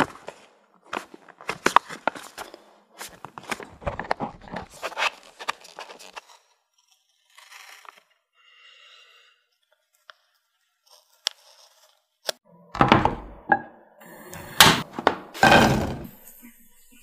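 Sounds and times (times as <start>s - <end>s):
plastic scraper scraping nougat: 0.2s - 8.3s.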